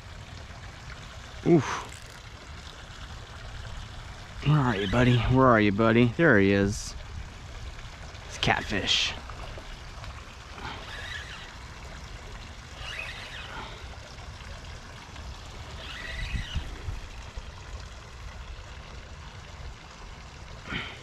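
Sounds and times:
water splashing and trickling: 0.0 - 21.0.

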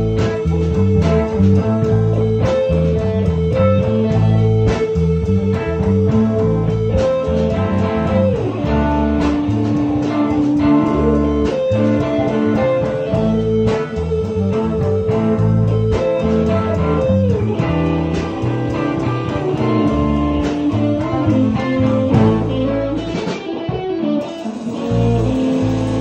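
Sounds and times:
walking bass line: 0.0 - 24.0, 24.6 - 26.0
electric lead guitar: 0.0 - 26.0
steady drum beat: 0.0 - 26.0.

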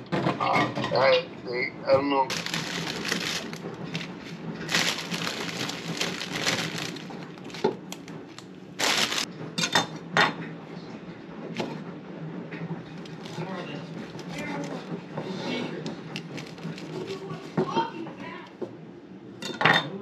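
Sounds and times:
plastic bag crinkling: 2.3 - 9.3, 16.2 - 17.2.

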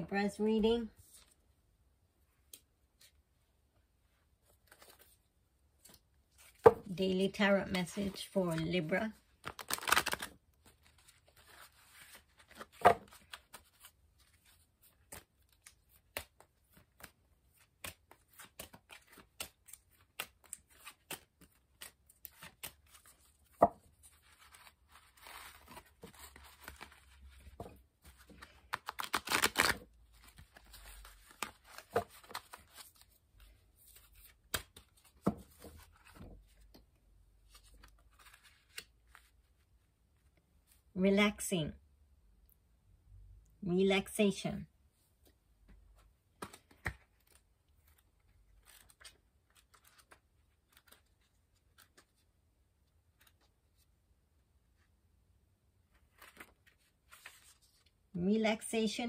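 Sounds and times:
cards being shuffled: 4.5 - 5.2, 7.8 - 36.8, 37.5 - 39.3, 46.4 - 48.0, 48.6 - 52.2, 56.1 - 57.8.

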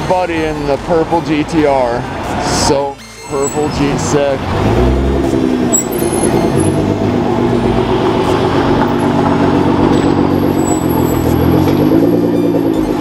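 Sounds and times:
car engine idling and revving: 3.4 - 13.0.

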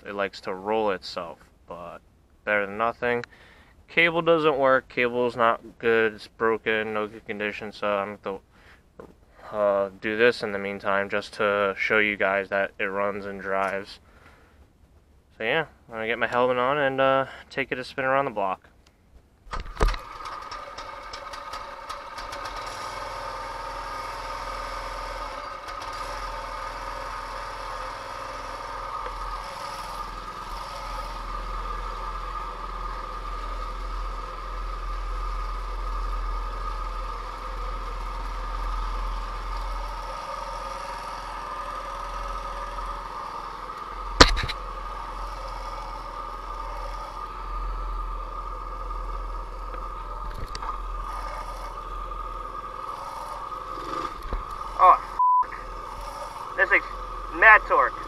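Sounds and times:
small engine running: 19.6 - 58.0.

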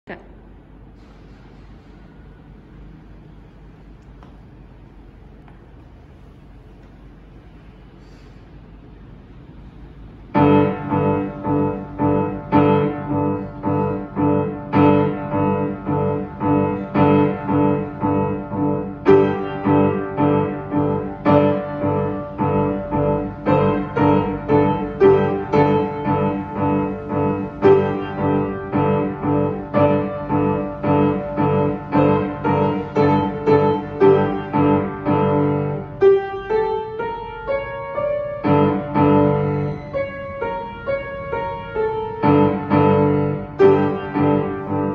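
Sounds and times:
upright piano chords: 10.2 - 44.9.

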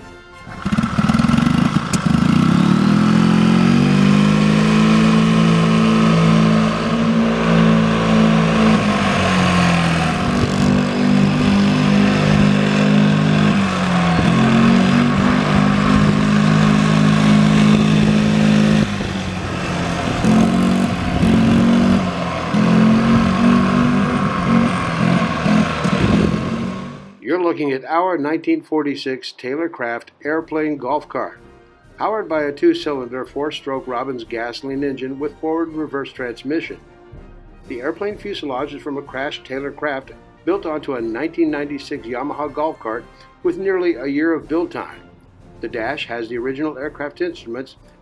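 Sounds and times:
engine revving: 0.4 - 27.2.

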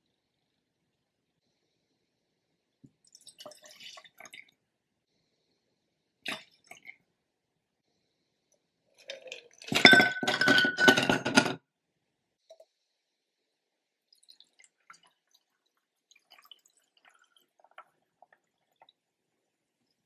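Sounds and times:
liquid trickling into glass: 9.0 - 10.0
ice cubes clattering into glass: 9.1 - 11.6.

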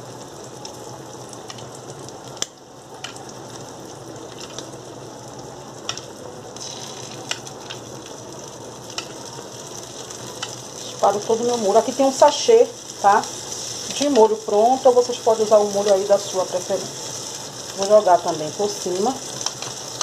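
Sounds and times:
eggs sizzling in oil: 0.0 - 20.0.

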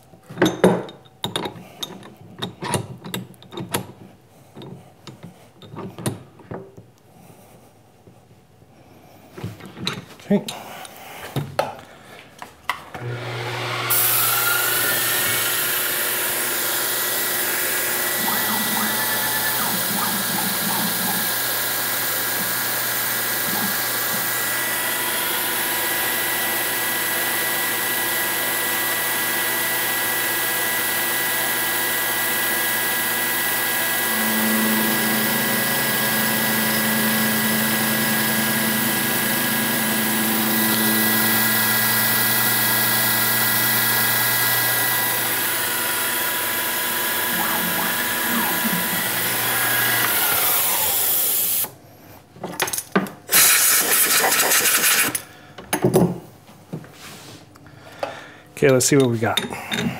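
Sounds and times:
milling machine spindle whine: 13.0 - 51.7
steady hiss of cutting: 13.1 - 28.1.

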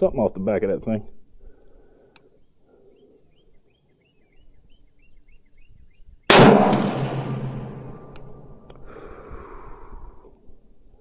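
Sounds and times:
rifle shot ringing out: 6.3 - 8.6.

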